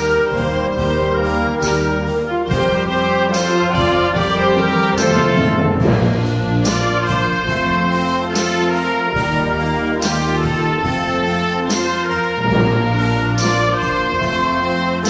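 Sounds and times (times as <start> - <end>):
concert band playing: 0.0 - 15.0.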